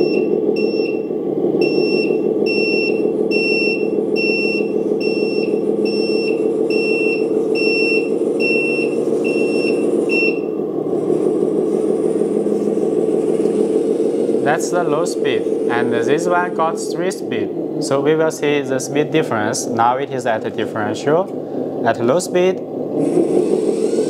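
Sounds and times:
reversing alarm beeping: 0:00.0 - 0:10.6
simulated diesel engine running: 0:00.0 - 0:24.0.

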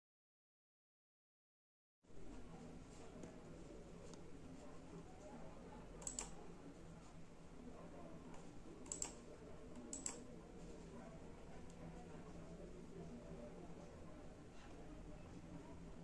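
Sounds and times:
laptop clicks: 0:06.0 - 0:06.4, 0:08.8 - 0:09.2.

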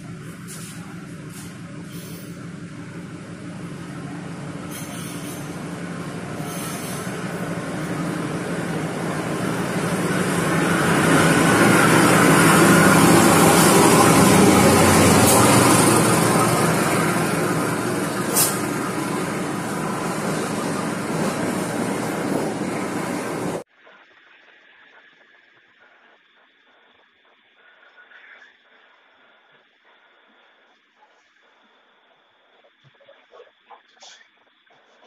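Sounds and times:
train wheels on rails: 0:00.0 - 0:23.6
diesel locomotive engine drone: 0:00.0 - 0:23.7.

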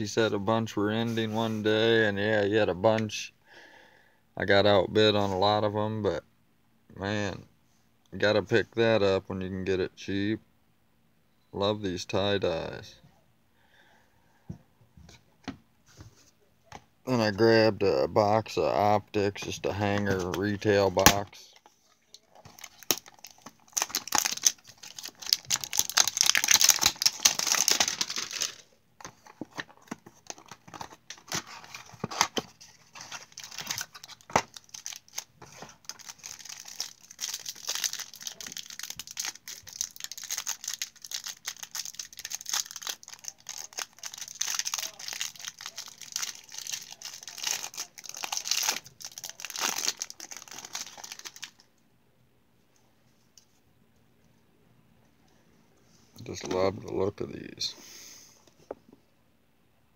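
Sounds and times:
packaging torn open: 0:22.4 - 0:28.6, 0:33.0 - 0:51.6
cards rustling: 0:22.4 - 0:51.6.

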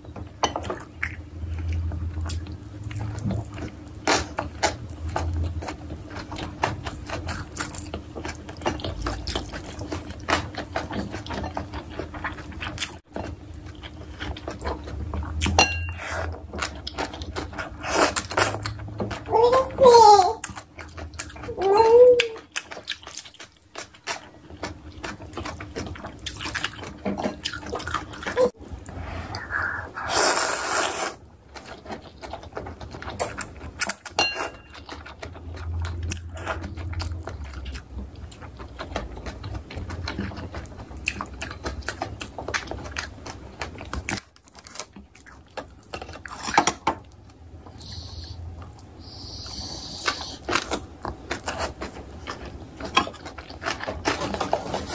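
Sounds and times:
wet chewing: 0:00.6 - 0:19.3, 0:20.4 - 0:54.9
loud noodle slurp: 0:29.1 - 0:31.2.

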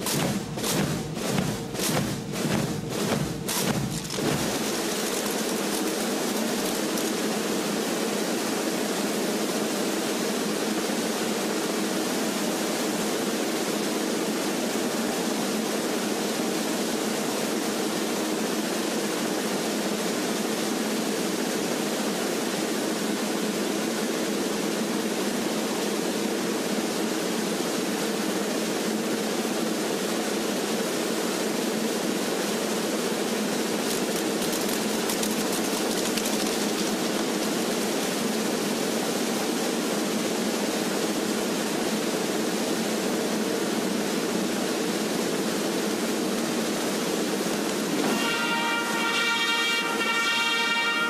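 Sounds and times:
drumming music: 0:00.0 - 0:07.1
steady static hiss: 0:00.0 - 0:51.0.

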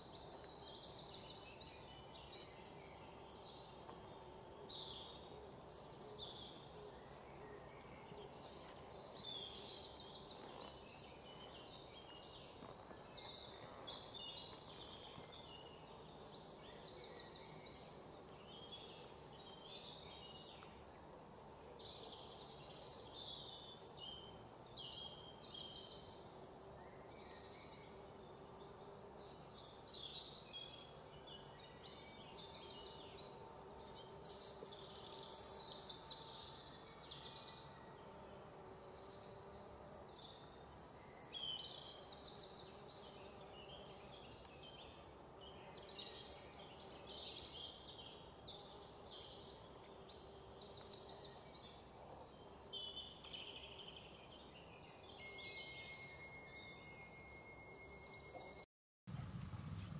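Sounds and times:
small birds chirping: 0:00.0 - 0:58.7
steady low hiss: 0:59.1 - 0:59.9.

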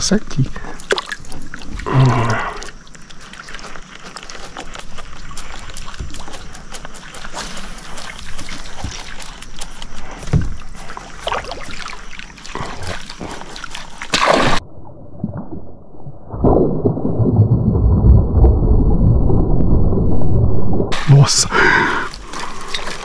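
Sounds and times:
water splashing against kayak: 0:00.8 - 0:14.6.

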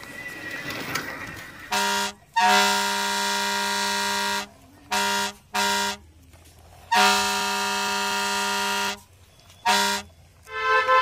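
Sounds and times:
higher-pitched horn: 0:01.7 - 0:06.0, 0:06.9 - 0:11.0
truck air horn blasts: 0:01.7 - 0:06.0, 0:06.9 - 0:11.0.

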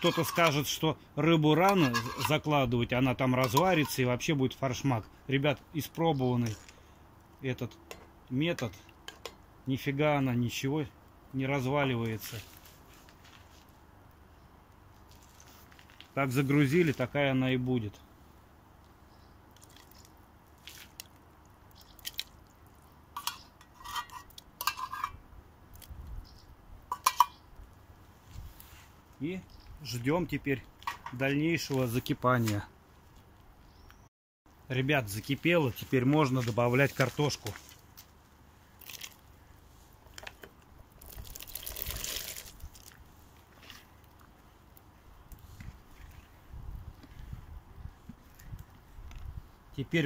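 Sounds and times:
metal spoon scraping tin can: 0:00.0 - 0:00.7, 0:01.6 - 0:02.5, 0:23.2 - 0:25.2
soft wet plops: 0:19.5 - 0:22.8
splashing and rustling: 0:19.5 - 0:25.1, 0:35.9 - 0:44.8.

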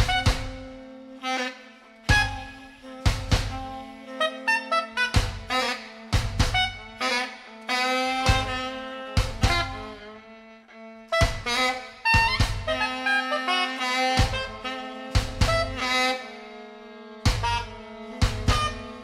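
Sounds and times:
drum strikes: 0:00.0 - 0:00.8, 0:02.1 - 0:03.8, 0:05.1 - 0:07.1, 0:08.3 - 0:09.9, 0:11.2 - 0:13.0, 0:14.2 - 0:16.1, 0:17.3 - 0:19.0
bowed viola tones: 0:00.0 - 0:19.0
saxophone lines: 0:00.0 - 0:19.0.

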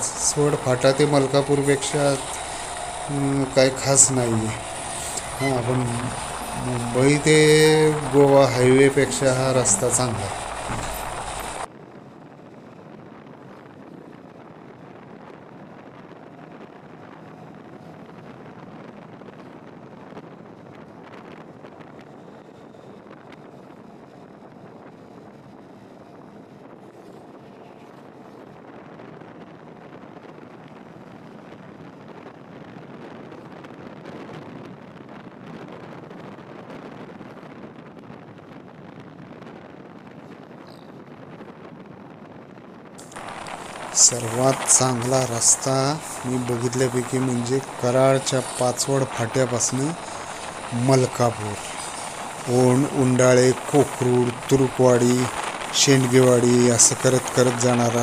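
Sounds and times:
vehicle road noise: 0:00.0 - 0:11.7
wind rushing on microphone: 0:00.0 - 0:58.0.

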